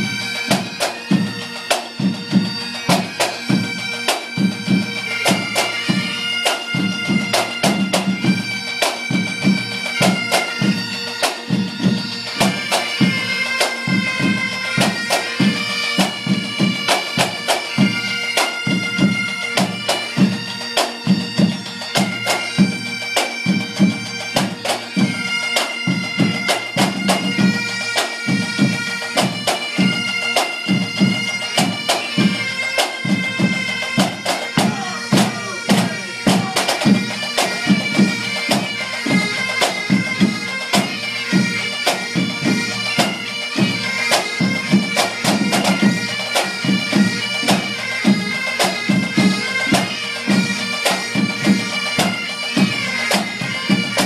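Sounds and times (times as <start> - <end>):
bagpipes playing a melody: 0.0 - 54.0
drums beating fast rhythm: 33.0 - 50.4.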